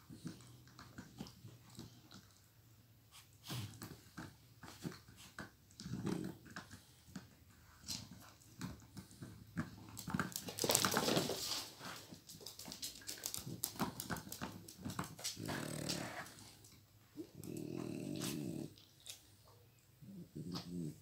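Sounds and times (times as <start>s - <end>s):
dog growling: 5.7s - 8.0s, 13.4s - 19.2s, 20.0s - 21.0s.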